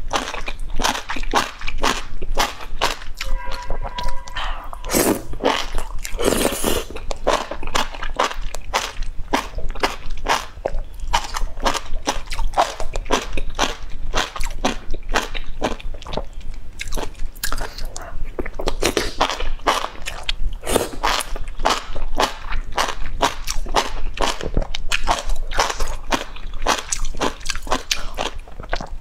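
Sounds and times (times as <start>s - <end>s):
wet chewing and smacking: 0.0s - 29.0s
slurping mushroom strands: 4.8s - 7.0s.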